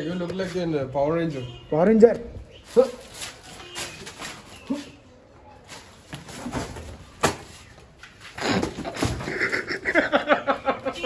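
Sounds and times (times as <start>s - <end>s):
helmet scuffle: 2.6s - 5.0s.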